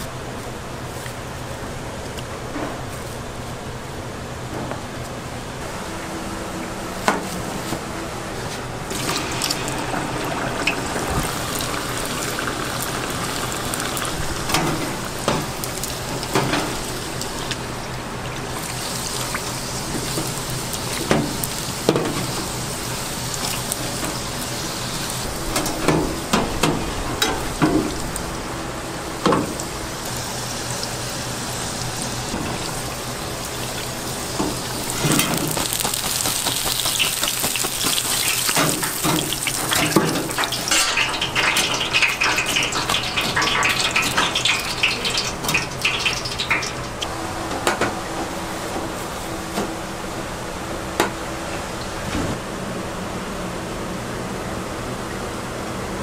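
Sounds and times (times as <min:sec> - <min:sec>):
dumplings deep-frying in oil: 0:08.8 - 0:28.3, 0:29.1 - 0:47.1.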